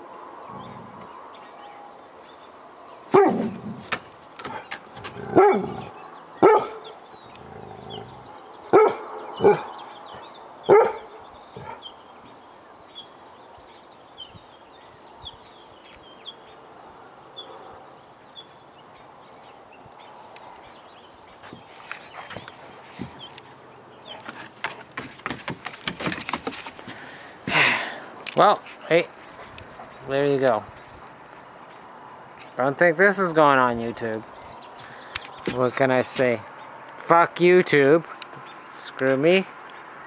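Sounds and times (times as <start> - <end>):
dog barking: 3.1 - 3.6, 5.3 - 7.0, 8.7 - 9.7, 10.7 - 11.8.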